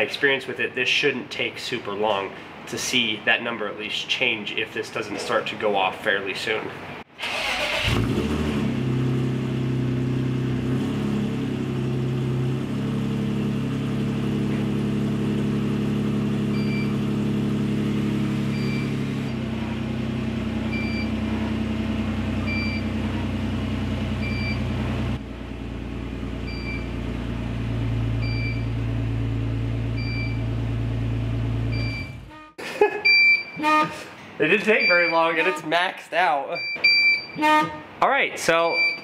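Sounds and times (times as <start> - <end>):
car engine starting and idling: 7.1 - 32.4
carbon monoxide detector beeping: 18.5 - 18.9, 20.7 - 21.2, 22.4 - 22.9, 24.2 - 24.7, 28.2 - 28.7, 30.0 - 30.4, 31.7 - 33.8, 34.8 - 35.5, 36.6 - 37.6, 38.8 - 39.0.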